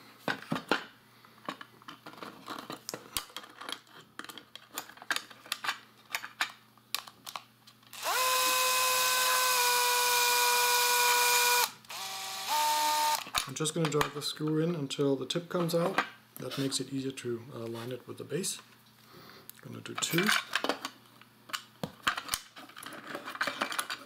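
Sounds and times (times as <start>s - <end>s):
plastic parts and screws clicking: 1.4s - 14.0s, 19.9s - 24.0s
cordless screwdriver whining: 8.0s - 13.3s.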